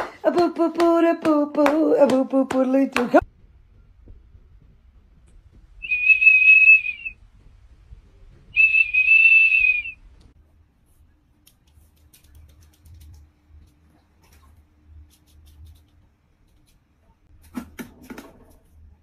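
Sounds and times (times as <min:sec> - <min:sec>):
high-pitched whistle blasts: 0:05.8 - 0:07.2, 0:08.5 - 0:10.0.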